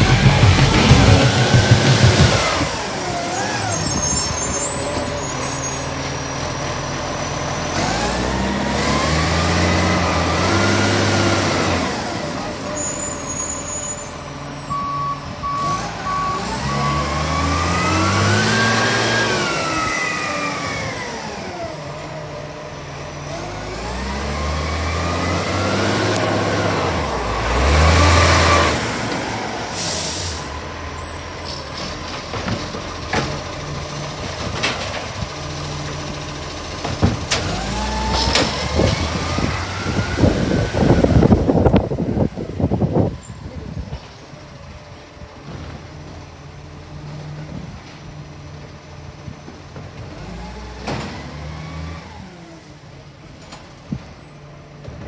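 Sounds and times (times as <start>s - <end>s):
garbage truck engine: 0.0s - 55.0s
reversing beeps: 14.7s - 17.4s
air hiss bursts: 29.8s - 30.6s.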